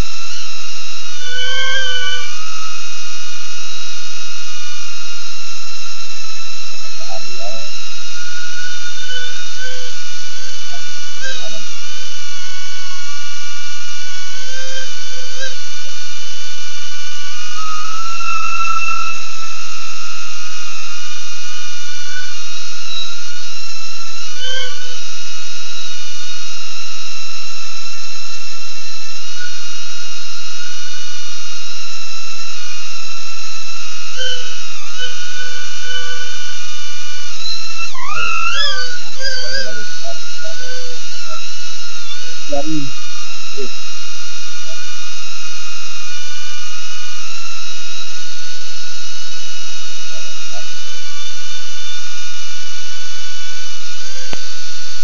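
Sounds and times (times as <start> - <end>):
drone propellers whining: 7.0 - 15.7, 33.7 - 44.0.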